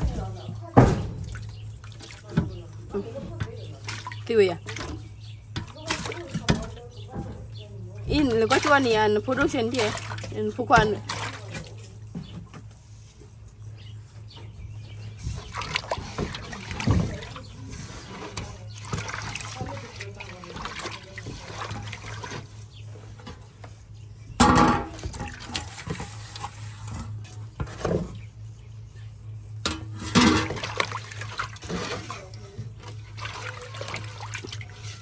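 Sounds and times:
water splashing and trickling: 0:00.0 - 0:13.2, 0:15.0 - 0:23.4, 0:24.5 - 0:28.0, 0:29.6 - 0:35.0
low steady hum: 0:00.0 - 0:35.0.

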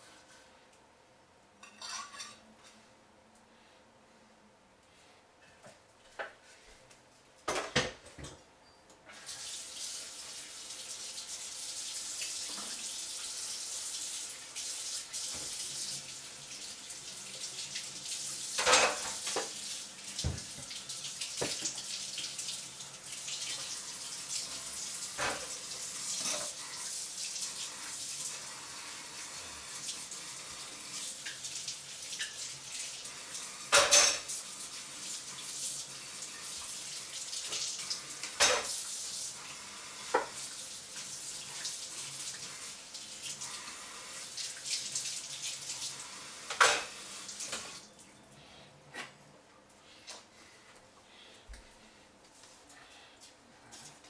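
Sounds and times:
dishes clattering against sink: 0:01.6 - 0:02.4, 0:07.5 - 0:08.4, 0:18.6 - 0:19.6, 0:33.7 - 0:34.3, 0:38.3 - 0:38.8, 0:46.5 - 0:47.7
tap water running into sink: 0:09.2 - 0:47.9.

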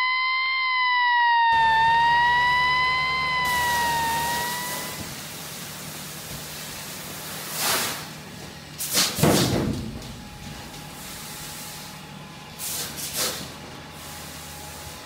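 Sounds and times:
hose nozzle spraying water: 0:04.3 - 0:08.1.

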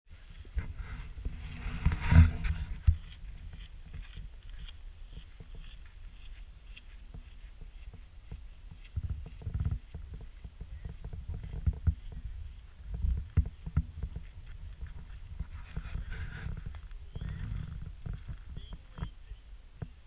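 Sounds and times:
wind buffeting microphone: 0:00.4 - 0:20.0
footsteps on gravel: 0:00.9 - 0:10.4.

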